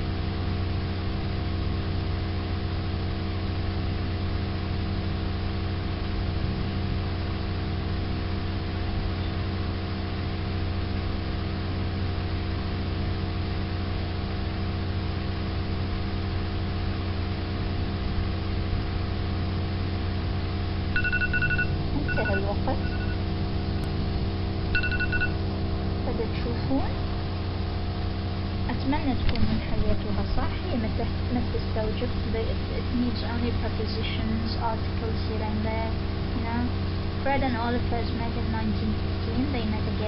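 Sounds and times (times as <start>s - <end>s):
steady hum with held tones: 0.0s - 40.0s
high electronic timer beeps: 21.0s - 23.3s, 24.7s - 25.4s.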